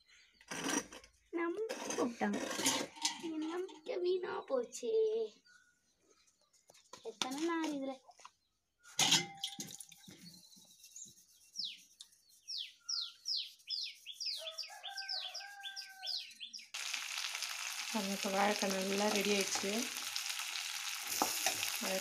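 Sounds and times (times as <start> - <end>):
food sizzling: 16.7 - 22.0.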